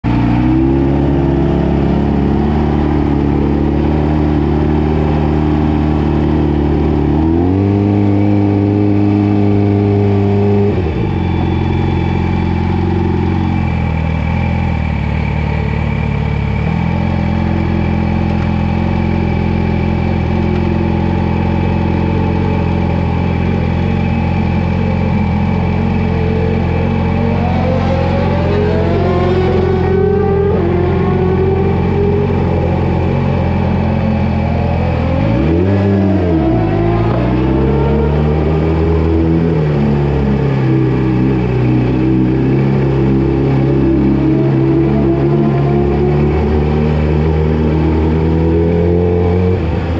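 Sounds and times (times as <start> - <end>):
sport bike engine revving: 0.0 - 49.9.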